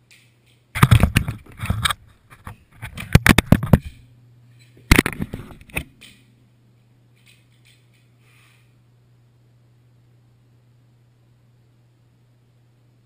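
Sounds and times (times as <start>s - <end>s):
low steady hum: 0.0s - 13.0s
knocking and scraping on camera: 0.8s - 4.0s, 4.8s - 5.9s.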